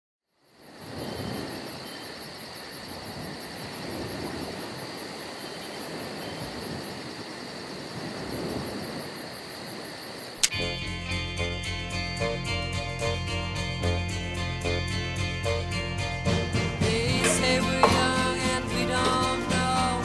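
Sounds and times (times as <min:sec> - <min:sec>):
crickets chirping: 0:00.3 - 0:20.0
music from radio: 0:16.8 - 0:20.0.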